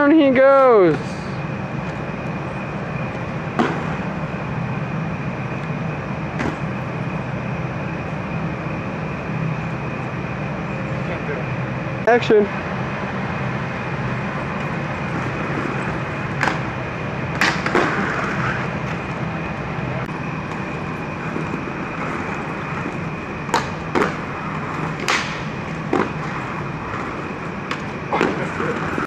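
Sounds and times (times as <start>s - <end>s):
inline skates rolling on pavement: 0.0s - 11.2s, 13.1s - 29.0s
background hum: 0.0s - 29.0s
skates clacking: 17.4s - 19.2s, 20.5s - 29.0s.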